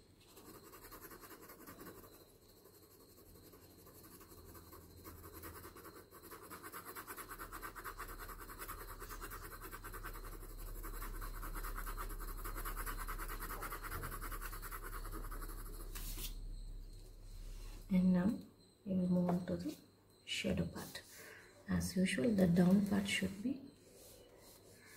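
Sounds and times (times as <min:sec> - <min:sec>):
pencil scratching on paper: 0:00.0 - 0:16.4.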